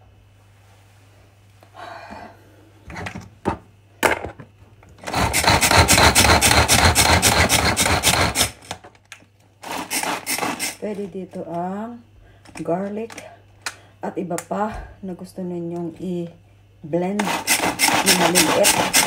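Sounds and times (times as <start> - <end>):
food chopper blades whirring: 5.0 - 8.7, 9.6 - 10.8, 17.2 - 19.0.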